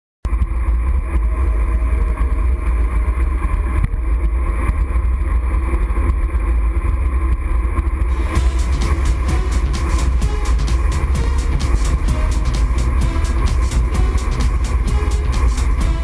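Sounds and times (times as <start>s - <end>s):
regular beat: 8.1s - 16.0s.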